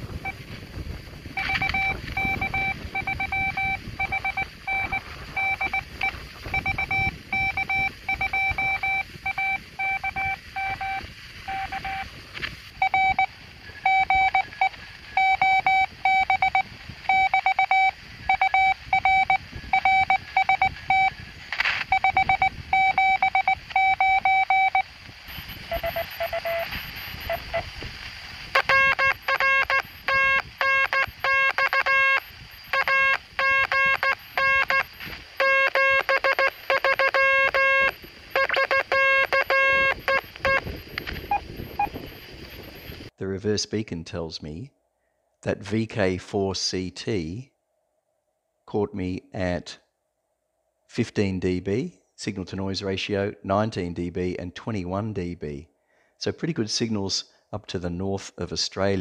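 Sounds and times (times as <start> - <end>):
morse code tone: 0.0 - 0.5, 1.4 - 12.1, 12.8 - 21.2, 21.9 - 27.7, 28.5 - 42.0
lower morse code tone: 0.0 - 0.6, 1.3 - 12.1, 12.8 - 21.2, 21.8 - 27.7, 28.5 - 42.9.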